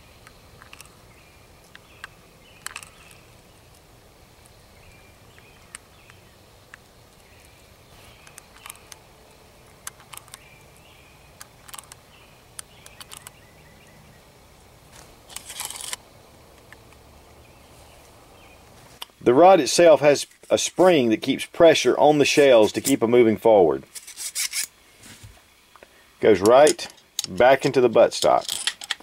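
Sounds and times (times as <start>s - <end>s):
rifle clicks and taps: 8.2s - 9.0s.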